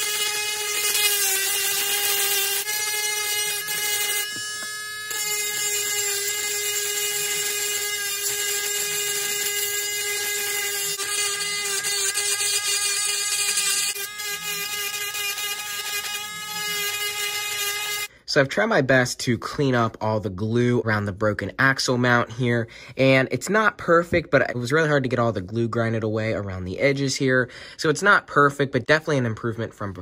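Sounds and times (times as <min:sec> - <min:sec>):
rotary tool whining: 0:00.0 - 0:18.1.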